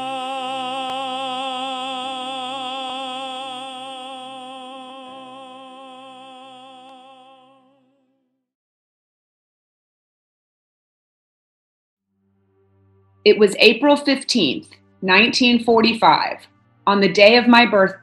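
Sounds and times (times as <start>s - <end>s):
person singing with vibrato: 0.0s - 7.6s.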